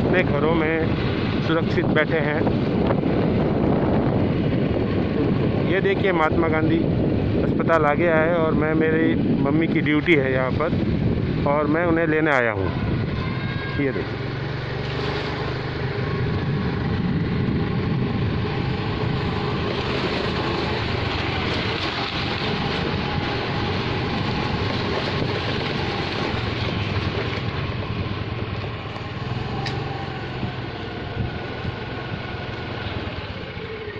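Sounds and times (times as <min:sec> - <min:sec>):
road and wind noise: 0:00.0 - 0:33.9
small motorbike engine humming: 0:12.7 - 0:33.9.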